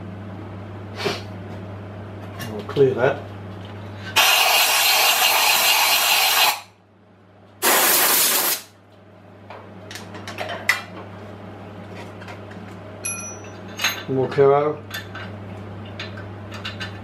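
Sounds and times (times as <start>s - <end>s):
air blow gun hissing: 7.6s - 8.7s.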